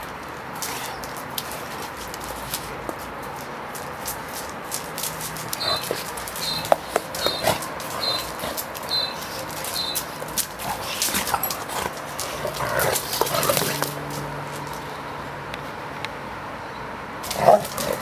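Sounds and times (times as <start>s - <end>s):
scuffling: 0.0s - 15.0s
dog claws scraping on concrete: 0.0s - 15.8s, 17.2s - 18.0s
high chirp: 5.6s - 10.1s
dogs growling while play-fighting: 5.6s - 14.0s.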